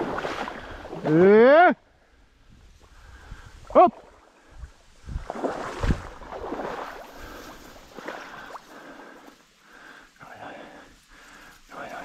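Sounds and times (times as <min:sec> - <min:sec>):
dry reeds rustling and scraping: 0:10.9 - 0:12.0.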